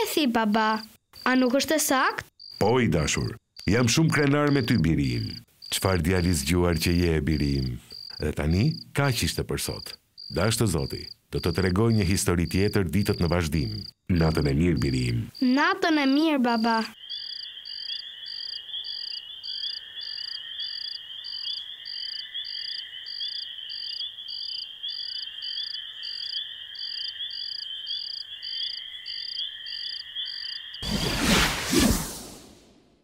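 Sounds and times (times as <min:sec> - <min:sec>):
crickets chirping: 0:00.0 - 0:32.6
loud whoosh: 0:30.8 - 0:32.8.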